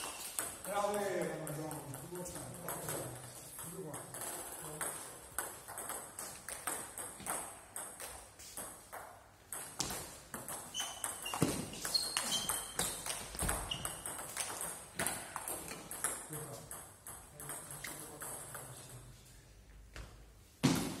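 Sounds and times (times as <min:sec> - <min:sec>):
short high squeaks: 0:10.7 - 0:14.2.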